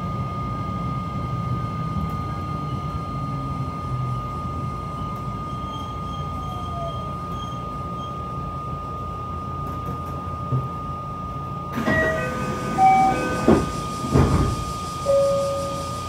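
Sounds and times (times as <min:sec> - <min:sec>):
electric train running: 0:11.7 - 0:16.0
short beeps: 0:11.8 - 0:13.7, 0:15.0 - 0:15.9
long tone: 0:11.8 - 0:16.0
thuds: 0:13.4 - 0:14.7.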